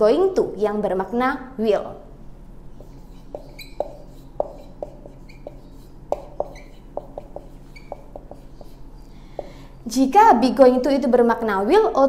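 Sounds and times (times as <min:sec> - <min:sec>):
marker squeaking on whiteboard: 0:02.7 - 0:09.5
marker tapping on whiteboard: 0:02.8 - 0:09.6.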